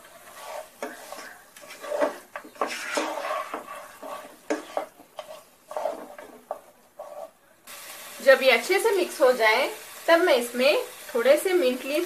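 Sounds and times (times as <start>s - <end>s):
wooden spatula scraping a pan: 0.0s - 7.5s.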